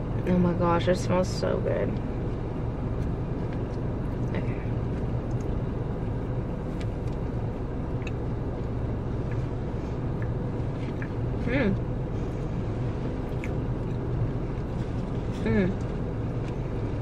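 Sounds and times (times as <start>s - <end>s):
car idling hum: 0.0s - 17.0s
eating sounds: 6.7s - 11.9s, 13.2s - 16.6s.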